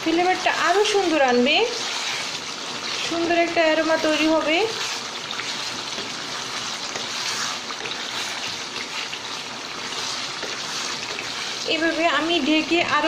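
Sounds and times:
curry sizzling and bubbling in pan: 0.0 - 13.0
wooden spatula stirring: 0.0 - 13.0.

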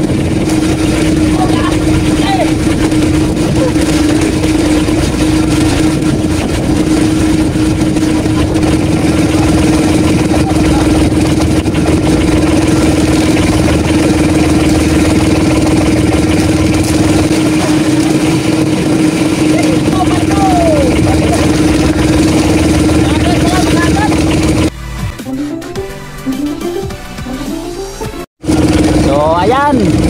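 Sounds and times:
boat engine droning: 0.0 - 30.0.

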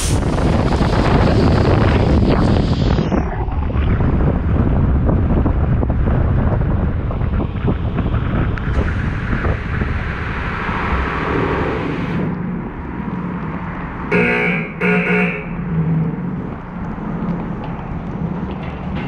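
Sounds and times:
short horn blasts: 14.1 - 15.7.

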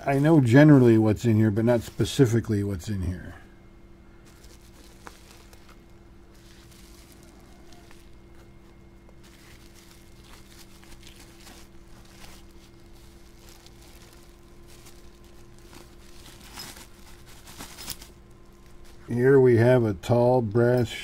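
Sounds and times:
bubble wrap crinkling: 0.0 - 2.4, 4.2 - 19.2
steady low hum: 0.0 - 21.0
rummaging in cardboard box: 4.2 - 19.1.

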